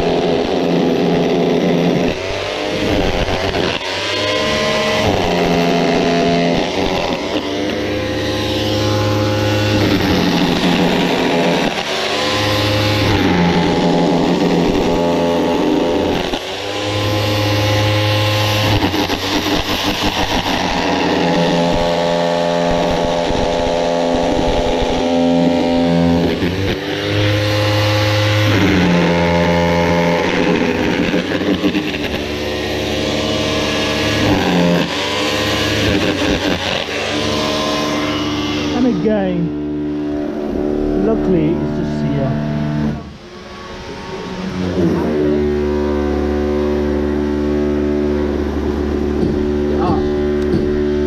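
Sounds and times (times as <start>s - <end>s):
power tool motor whine into concrete: 0.0s - 51.0s.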